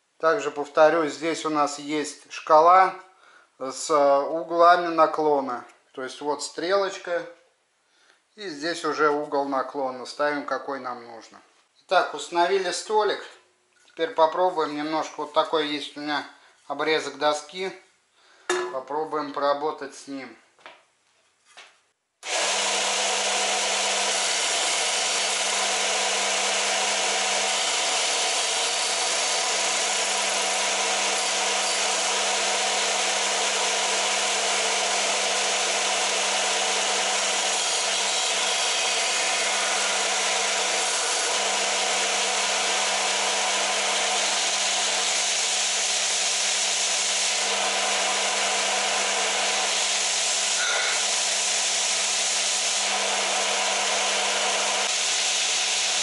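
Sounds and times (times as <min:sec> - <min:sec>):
sander motor hum: 0:22.2 - 0:56.0
wooden board being sanded: 0:22.6 - 0:56.0.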